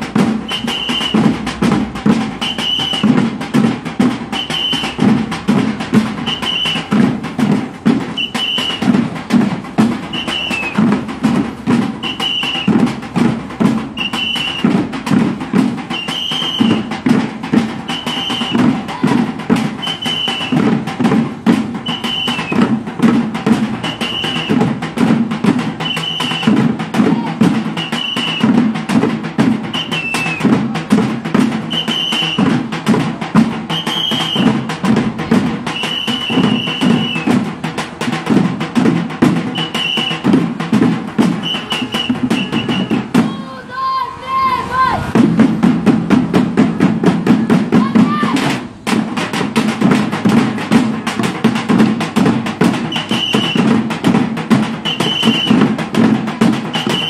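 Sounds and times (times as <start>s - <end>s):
plastic buckets drummed: 0.0s - 43.5s, 45.1s - 57.0s
short high whistle blasts: 0.5s - 1.2s, 2.4s - 3.0s, 4.4s - 4.9s, 6.2s - 6.8s, 8.2s - 8.8s, 10.1s - 10.8s, 12.0s - 12.7s, 14.0s - 14.6s, 16.0s - 16.8s, 21.9s - 22.6s, 23.8s - 24.5s, 25.8s - 26.4s, 31.7s - 32.4s, 33.8s - 34.5s, 35.8s - 37.3s, 39.6s - 40.2s, 41.4s - 43.0s, 52.9s - 53.6s, 54.9s - 55.6s, 56.8s - 57.0s.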